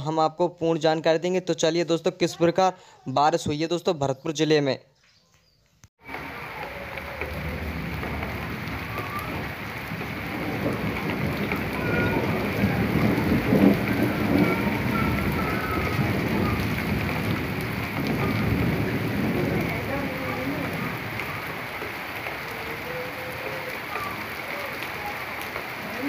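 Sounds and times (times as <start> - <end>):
heavy rain on wet ground: 6.0 - 26.0.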